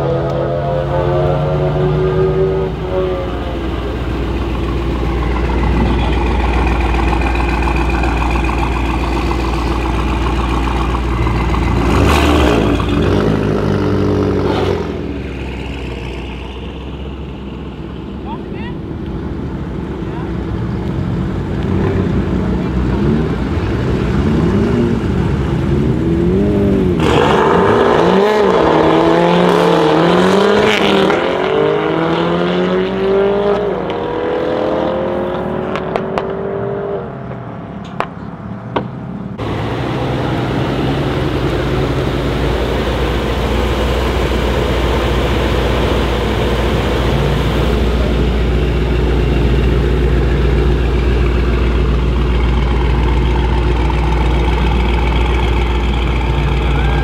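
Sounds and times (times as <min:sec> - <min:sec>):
car engine revving and accelerating: 0:00.0 - 0:17.8, 0:20.4 - 0:37.8
car engine idling: 0:02.6 - 0:24.2, 0:38.0 - 0:57.0.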